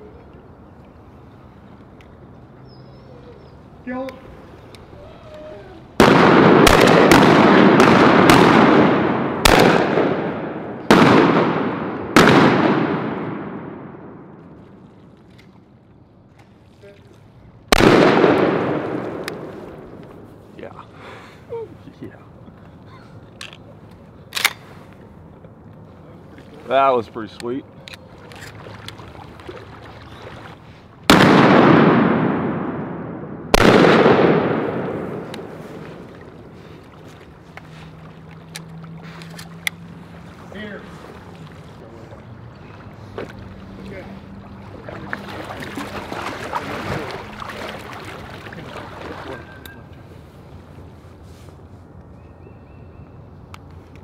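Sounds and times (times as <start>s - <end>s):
shotgun blasts echoing: 6.0s - 14.3s, 17.7s - 19.9s, 31.1s - 35.9s.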